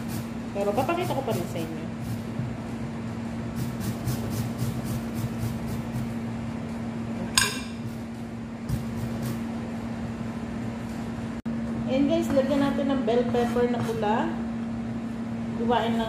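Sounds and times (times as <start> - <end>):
grater rasping: 3.6 - 6.1.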